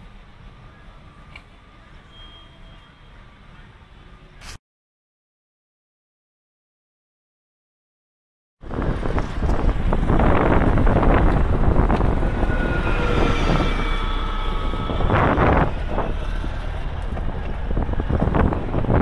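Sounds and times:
thin high squeal: 2.0 - 3.2, 12.2 - 16.3
bicycle rumble over pavement: 8.6 - 19.0
wind buffeting microphone: 8.6 - 19.0.

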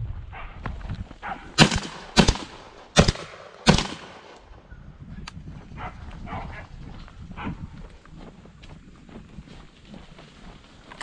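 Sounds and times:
gunshots: 1.6 - 4.4.

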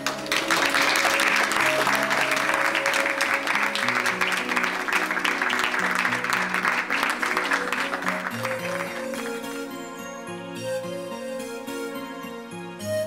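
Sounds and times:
audience applauding: 0.0 - 9.8
soft instrumental music: 0.0 - 13.0.

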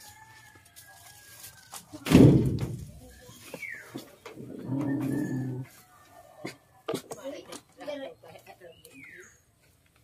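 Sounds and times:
heavy thump: 2.0 - 3.0.

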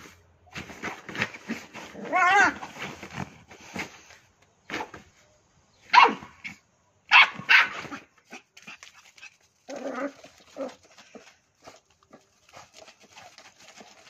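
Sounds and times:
puppy barking: 5.9 - 6.4, 7.1 - 8.4.

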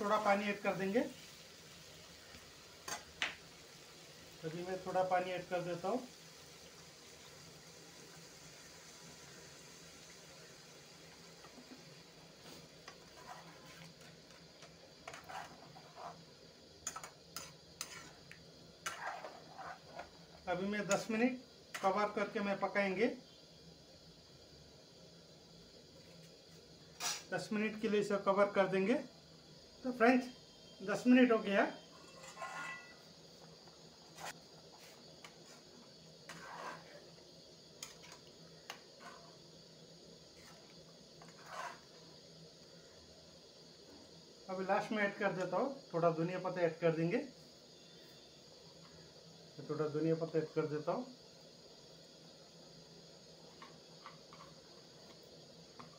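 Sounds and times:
spatula scraping metal pan: 12.9 - 13.9, 15.0 - 16.2, 16.9 - 18.2, 18.8 - 20.1, 31.9 - 33.0, 36.3 - 37.1, 40.3 - 42.0.

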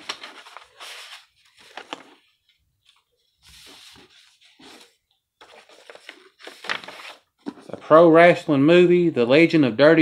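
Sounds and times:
paper envelope rustling: 0.0 - 7.9.

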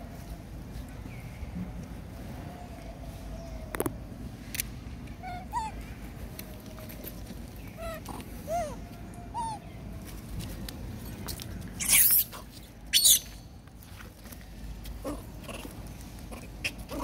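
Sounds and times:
macaque coo: 5.2 - 5.8, 7.7 - 9.6, 15.0 - 17.0
macaque shrill cries: 5.2 - 5.8, 7.8 - 9.6, 11.8 - 12.3, 12.9 - 13.2.

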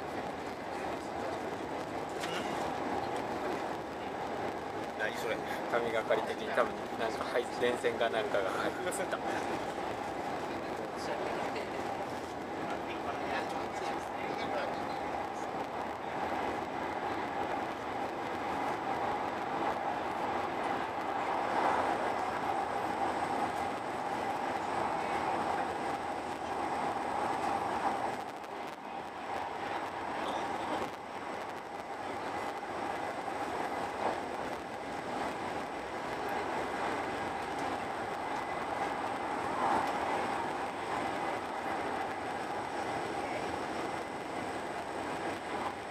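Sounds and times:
train rolling noise from inside: 0.0 - 45.9.

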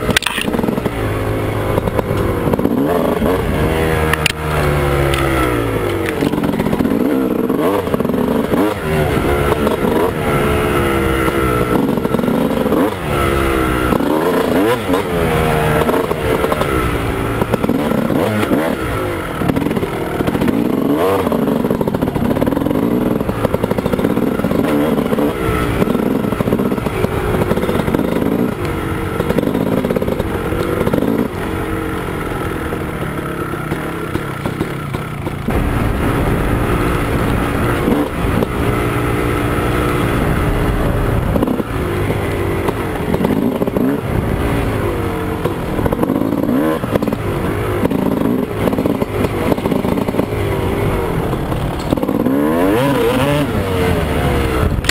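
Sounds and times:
dirt bike engine revving: 0.0 - 54.9
bike knocks and rattles: 32.4 - 35.8.

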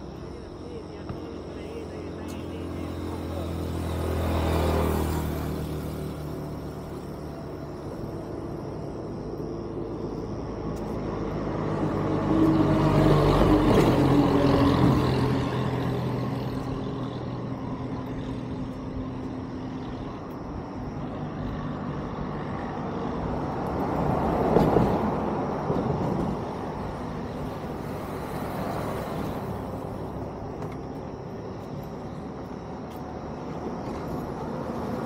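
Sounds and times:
bus engine passing: 0.0 - 35.0
traffic noise: 0.0 - 35.0.

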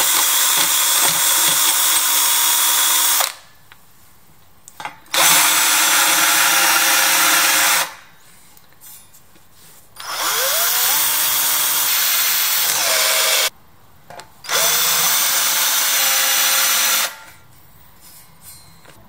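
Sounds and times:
cordless drill drilling steel: 0.0 - 3.3, 5.2 - 8.0, 10.0 - 13.5, 14.5 - 17.2
drill driving a screw: 0.0 - 3.4, 5.2 - 8.0, 10.0 - 13.5, 14.5 - 17.2.

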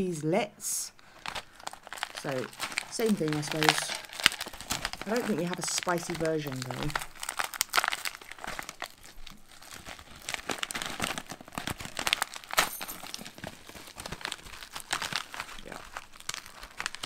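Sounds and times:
plastic pouch crinkling: 1.0 - 17.0.

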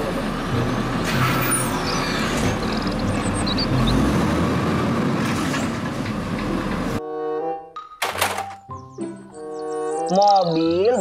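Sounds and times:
diesel engine rumbling: 0.0 - 7.0.

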